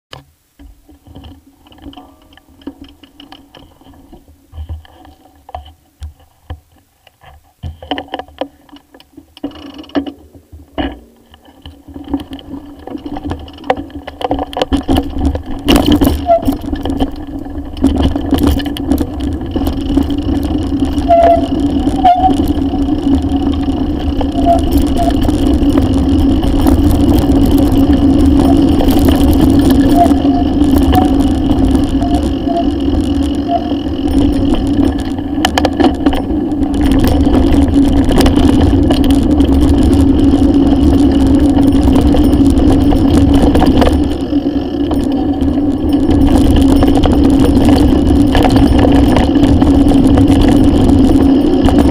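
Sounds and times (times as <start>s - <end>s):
bike clicks and knocks: 0.1s - 51.9s
bike frame rattling: 0.6s - 51.9s
tyres rumbling on dirt track: 7.6s - 51.9s.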